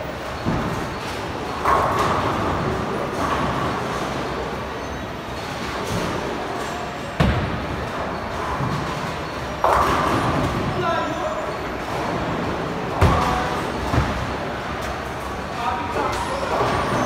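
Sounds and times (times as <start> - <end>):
bowling balls rolling down lanes: 0.1 - 17.0
balls crashing into pins: 0.4 - 4.1, 7.2 - 10.7, 11.8 - 15.0.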